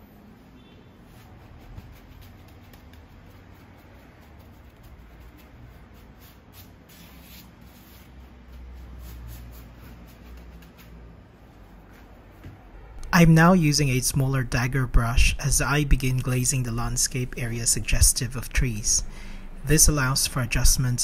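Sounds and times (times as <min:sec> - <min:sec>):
brush strokes on canvas: 0:01.0 - 0:12.4
low steady hum: 0:10.2 - 0:21.0.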